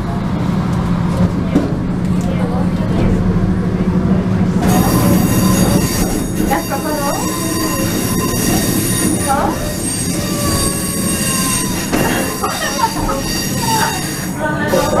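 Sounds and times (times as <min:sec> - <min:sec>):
train wheels squealing on rails: 0:04.6 - 0:15.0.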